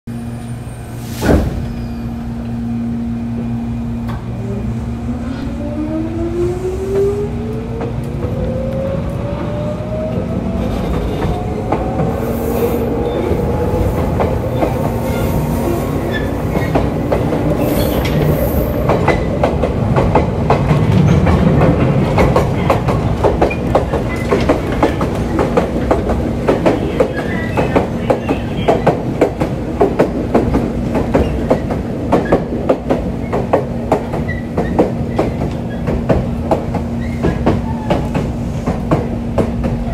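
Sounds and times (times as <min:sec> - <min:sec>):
wheels clacking over rail joints: 0:13.9 - 0:39.9.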